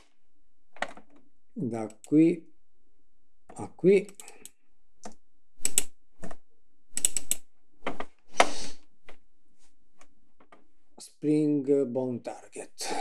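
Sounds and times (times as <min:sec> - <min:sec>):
keyboard and mouse clicking: 0:04.1 - 0:07.5.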